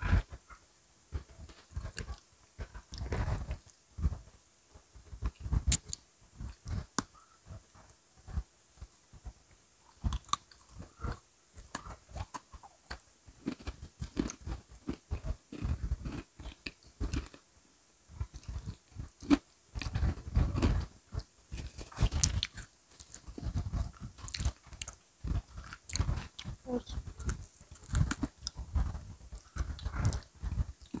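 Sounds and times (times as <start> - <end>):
crunching and chewing cookies: 0.0 - 17.5, 18.2 - 31.0.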